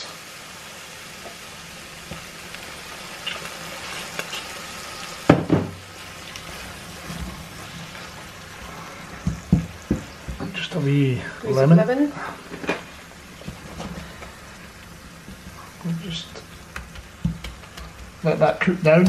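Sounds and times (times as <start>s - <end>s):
food sizzling in a frying pan: 0.0s - 19.0s
spoon stirring in pan: 15.2s - 19.0s.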